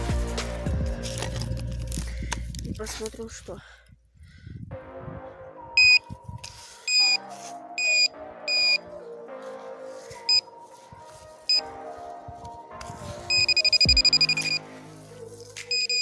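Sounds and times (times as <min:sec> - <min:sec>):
background music: 0:00.0 - 0:03.5, 0:04.7 - 0:16.0
metal detector pinpointer beeping: 0:05.8 - 0:06.0, 0:06.9 - 0:07.2, 0:07.8 - 0:08.8, 0:13.3 - 0:14.6, 0:15.7 - 0:16.0.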